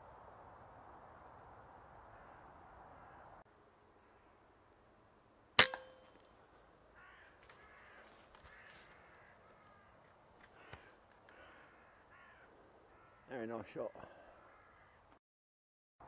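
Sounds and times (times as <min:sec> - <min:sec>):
air rifle shot: 0:05.6 - 0:06.0
crows cawing: 0:06.9 - 0:13.4, 0:14.0 - 0:15.2.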